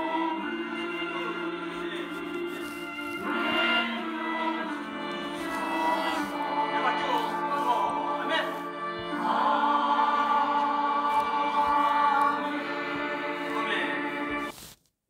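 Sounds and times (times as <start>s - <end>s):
choir singing a hymn: 0.0s - 14.5s.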